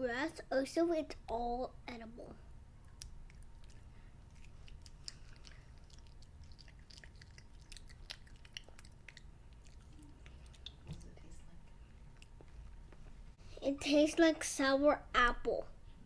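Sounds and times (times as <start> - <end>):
child chewing with mouth clicks: 2.8 - 13.1.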